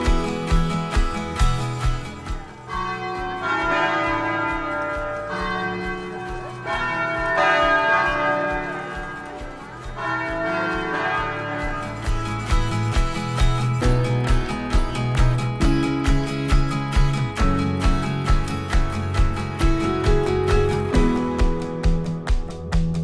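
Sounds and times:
church bells ringing: 2.6 - 14.4.

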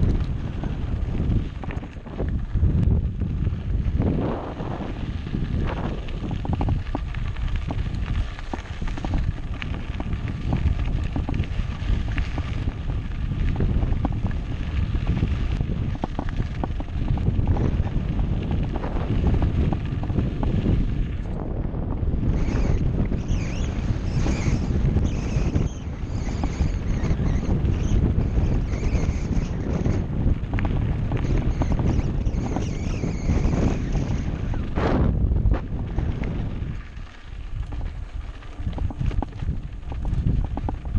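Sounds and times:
bike rumble: 0.0 - 40.9
wind buffeting microphone: 0.0 - 40.9
bike rattling clicks and knocks: 5.5 - 21.4
high squeals: 31.2 - 34.7.

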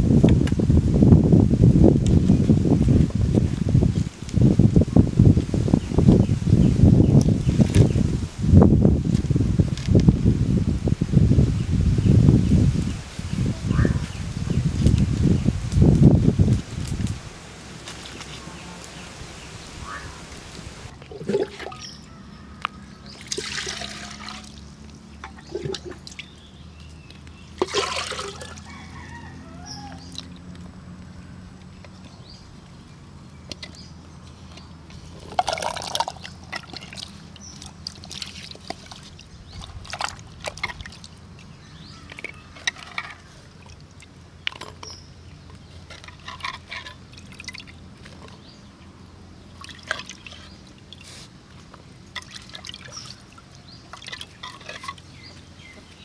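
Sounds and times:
water pouring into clay pot: 20.9 - 22.0, 23.2 - 24.6, 27.6 - 28.7, 35.2 - 41.2, 52.1 - 55.1
hands splashing vegetables in water: 23.2 - 24.6, 27.6 - 28.6, 49.5 - 55.2
water dripping: 49.6 - 55.1.

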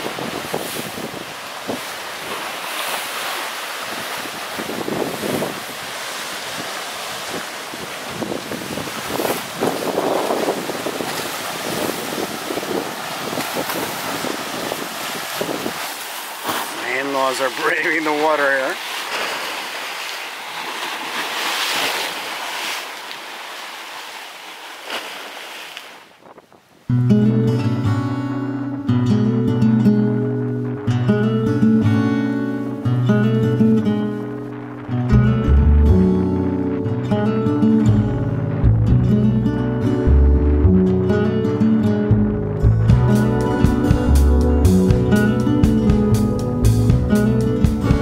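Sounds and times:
gusty wind buffeting microphone: 0.0 - 2.6, 3.8 - 16.9, 26.0 - 26.9, 30.3 - 41.2
surf washing: 0.0 - 48.0.

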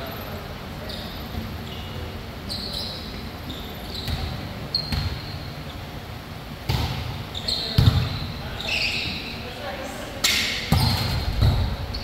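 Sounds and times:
sneaker squeaks on court: 0.8 - 5.8, 6.7 - 9.4, 10.6 - 12.0
volleyball being struck: 6.7 - 7.2.

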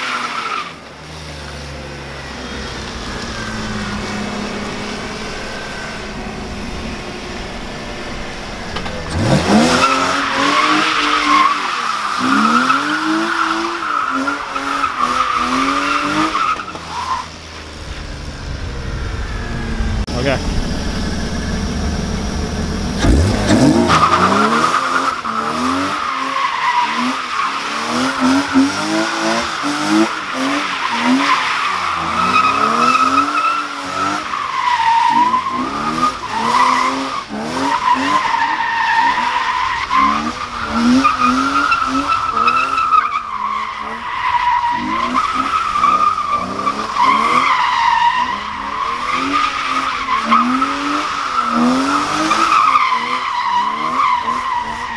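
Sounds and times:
car engine revving: 0.0 - 54.9
tyres squealing: 1.7 - 17.8.

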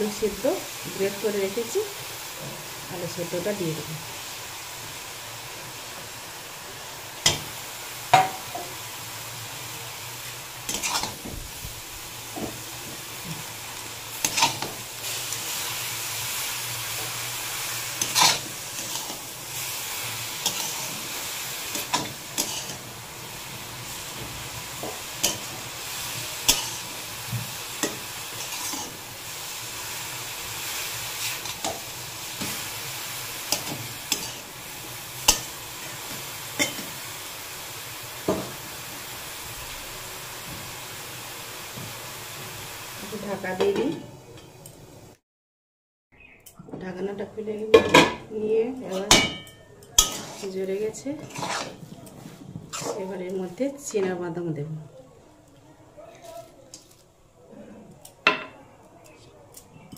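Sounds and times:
steady sizzle: 0.0 - 45.2, 46.3 - 59.9
metal spatula scraping a pan: 10.6 - 11.2, 14.1 - 23.0, 23.9 - 29.2, 33.4 - 34.6, 48.8 - 54.1.

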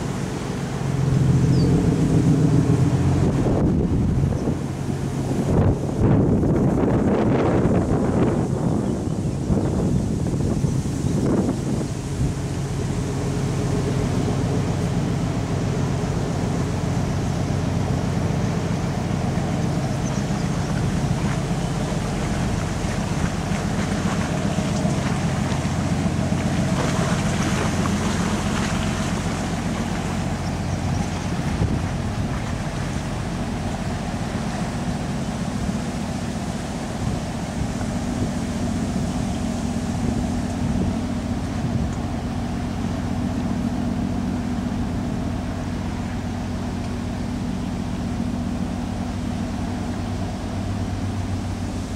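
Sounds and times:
ship diesel engine humming: 0.0 - 51.9
wind on microphone: 1.0 - 13.0, 17.8 - 42.7
water washing: 9.5 - 51.9.

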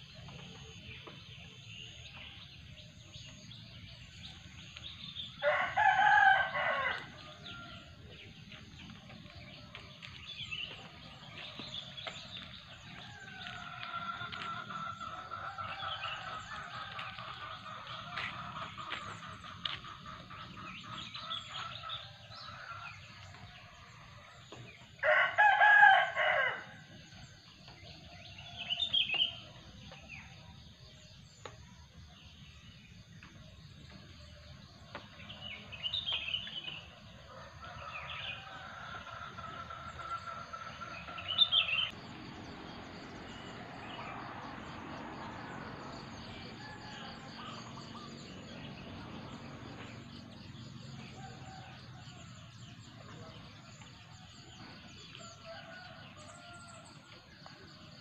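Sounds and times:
rooster crowing: 5.4 - 7.9, 12.4 - 18.3, 25.0 - 26.9, 43.2 - 52.6, 55.1 - 57.2.

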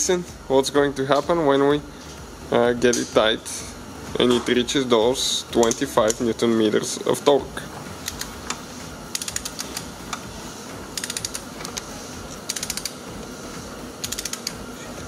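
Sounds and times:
torque wrench clicking: 5.6 - 6.2, 8.0 - 10.2, 11.0 - 13.0, 14.0 - 14.6.

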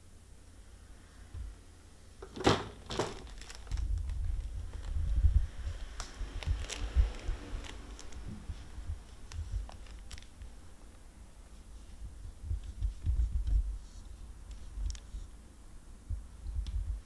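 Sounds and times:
kitten scrambling in plastic basket: 2.3 - 4.8.

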